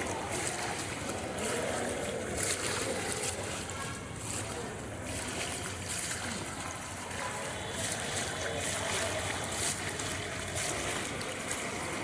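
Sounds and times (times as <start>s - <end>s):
floodwater sloshing and splashing: 0.0s - 12.0s.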